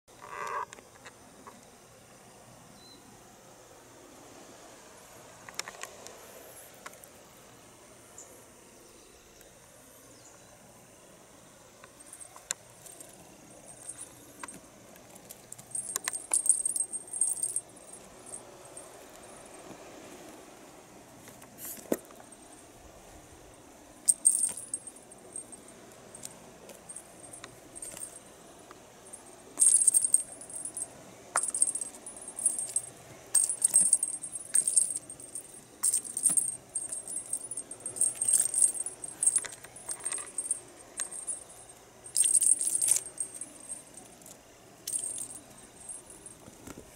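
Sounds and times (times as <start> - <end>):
small bell jingling: 12.0 - 14.6, 15.6 - 19.5, 24.1 - 28.3, 29.1 - 46.4.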